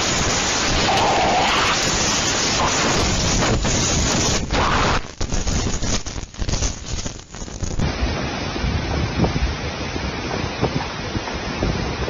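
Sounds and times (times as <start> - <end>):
hurricane wind and rain: 0.0 - 12.0
wind buffeting microphone: 7.8 - 12.0.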